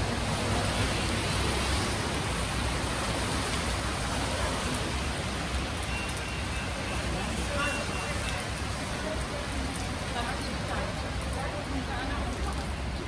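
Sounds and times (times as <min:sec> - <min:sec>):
rain hissing: 0:00.0 - 0:13.0
wet road noise: 0:00.0 - 0:13.0.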